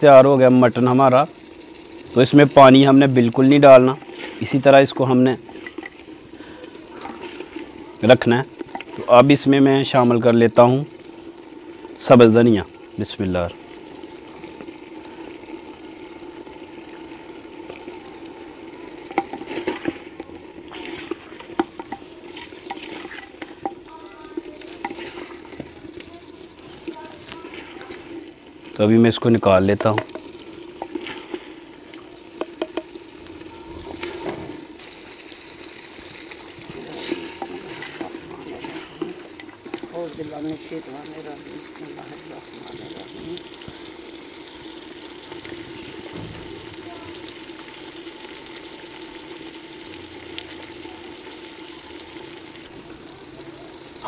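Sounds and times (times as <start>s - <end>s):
meat sizzling in a pot: 0.0s - 54.0s
steady watery hiss: 0.0s - 54.0s
ladle scraping clay pot: 19.0s - 26.0s, 36.6s - 39.9s
metal ladle scraping clay pot: 19.1s - 23.8s.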